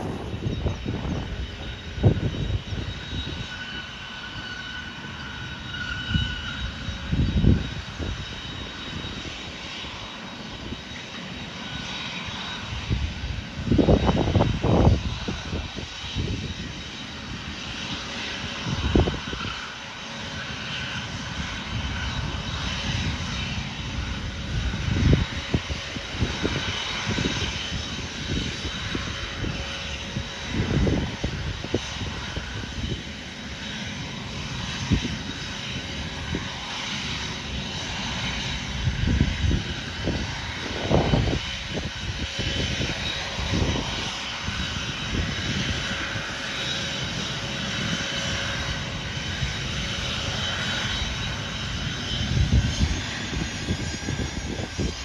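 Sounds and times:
distant jet engine whine: 0:00.0 - 0:55.0
wind rumble on microphone: 0:00.0 - 0:55.0.

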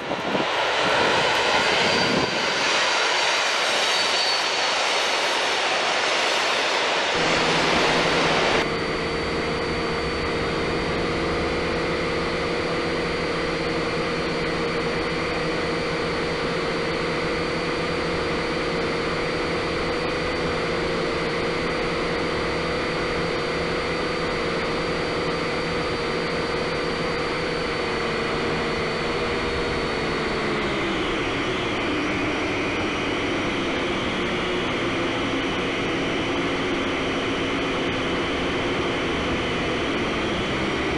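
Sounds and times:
train crossing steel bridge: 0:00.0 - 0:08.7
drone propellers humming: 0:00.0 - 0:40.9.

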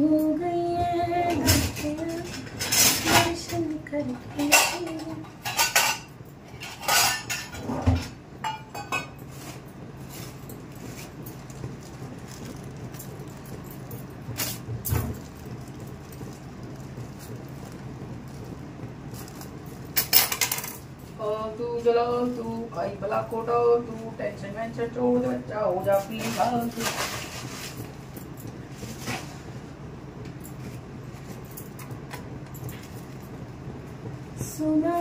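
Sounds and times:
utensils and steel dishes clinking: 0:01.3 - 0:11.1, 0:25.8 - 0:28.3.

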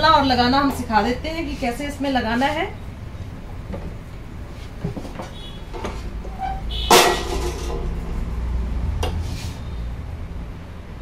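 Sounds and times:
low steady hum: 0:00.0 - 0:11.0
loud metallic clank: 0:05.8 - 0:08.1
metal parts knocking: 0:06.8 - 0:08.0.

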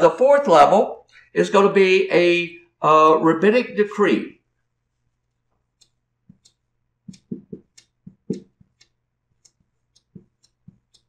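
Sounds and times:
marker squeaking on whiteboard: 0:05.8 - 0:11.0.

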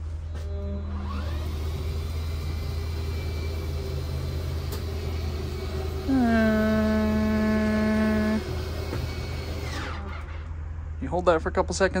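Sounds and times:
electric motor whining: 0:00.4 - 0:10.4
idling engine hum: 0:01.9 - 0:11.0.

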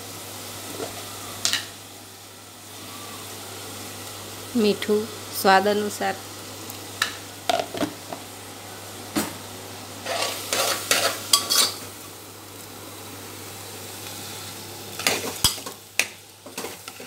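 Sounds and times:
faint sizzle: 0:00.0 - 0:17.0
spoon scraping metal pot: 0:10.0 - 0:11.8.

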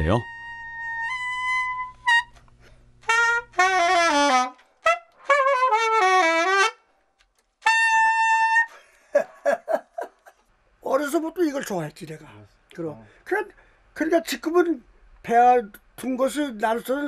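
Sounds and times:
alto saxophone solo: 0:00.0 - 0:06.8, 0:07.6 - 0:08.8.

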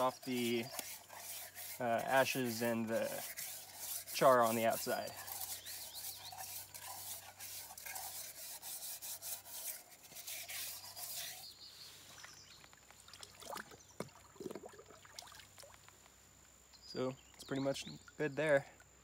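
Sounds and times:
cup scrubbed with sand: 0:00.0 - 0:12.1.

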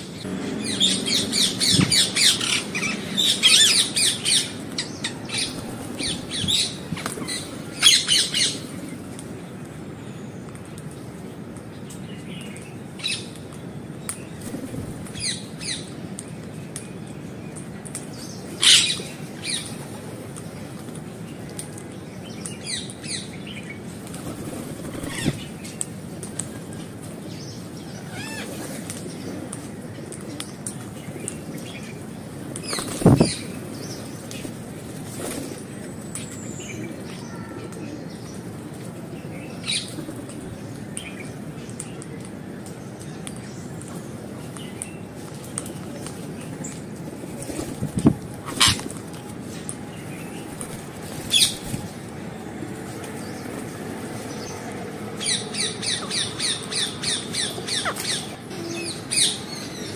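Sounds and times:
parakeets screeching: 0:00.2 - 0:08.6, 0:28.1 - 0:28.6, 0:48.4 - 0:48.8, 0:55.2 - 0:59.8
parakeets chirping and squeaking: 0:00.4 - 0:04.5
wing fluttering: 0:32.6 - 0:33.7.

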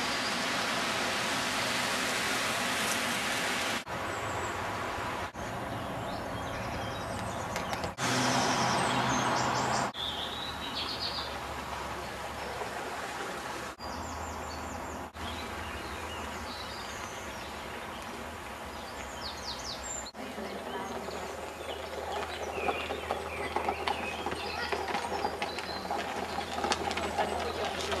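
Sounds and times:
small birds chirping: 0:05.4 - 0:12.6, 0:13.8 - 0:28.0.

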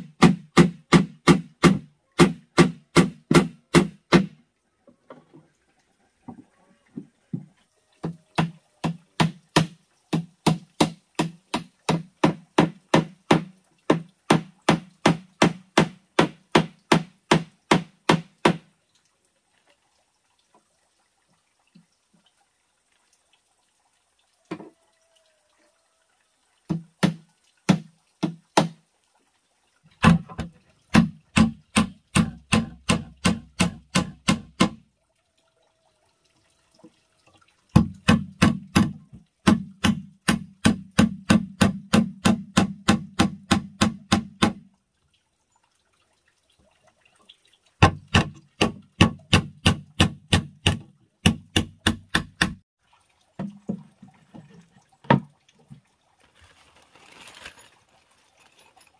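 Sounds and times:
hammer nailing into wood: 0:00.0 - 0:04.4, 0:08.4 - 0:18.6, 0:30.0 - 0:34.8, 0:37.8 - 0:44.6, 0:47.8 - 0:52.6.

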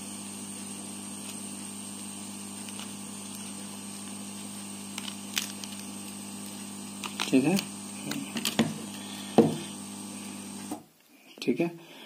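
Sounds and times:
electrical hum: 0:00.0 - 0:11.0
plastic card clicking: 0:04.9 - 0:05.9.

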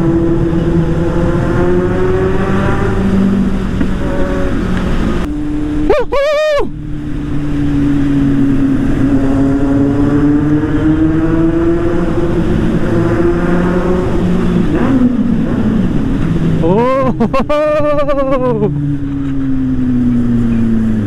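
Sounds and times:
motorcycle engine accelerating: 0:00.0 - 0:21.0
road and wind noise: 0:00.0 - 0:21.0
horn honk: 0:03.9 - 0:04.9.

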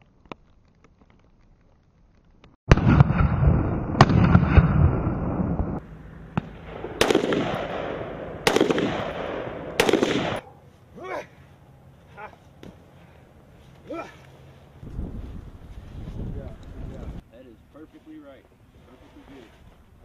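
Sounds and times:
rifle shots with echo: 0:02.7 - 0:05.7, 0:06.3 - 0:10.4.

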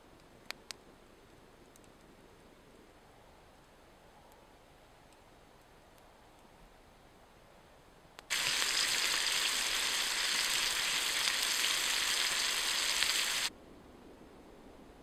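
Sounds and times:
bacon sizzling in a frying pan: 0:08.3 - 0:13.5.

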